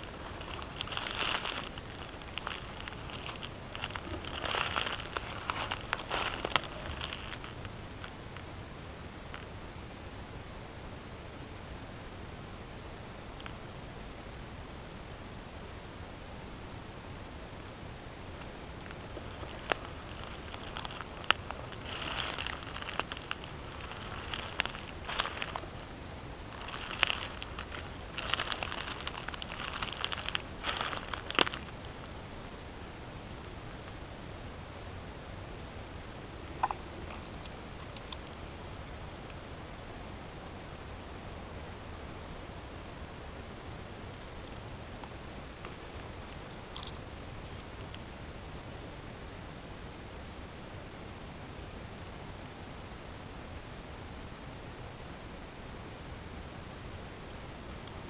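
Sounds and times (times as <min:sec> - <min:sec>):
dry leaves crunching: 0:00.0 - 0:08.1, 0:18.8 - 0:32.3, 0:36.6 - 0:39.0.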